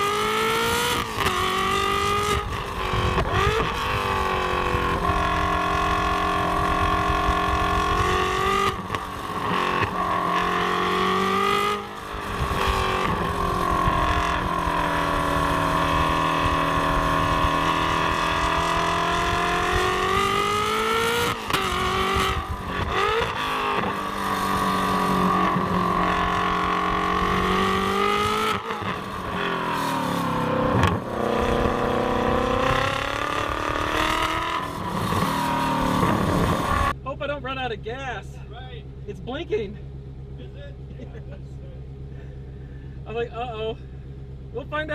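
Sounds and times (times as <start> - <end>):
sports car engine revving: 0.0 - 44.9.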